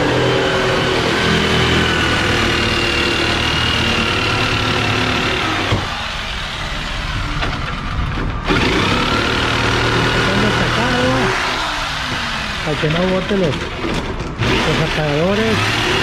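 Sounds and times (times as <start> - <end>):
motor humming with high whine: 0.0 - 16.0.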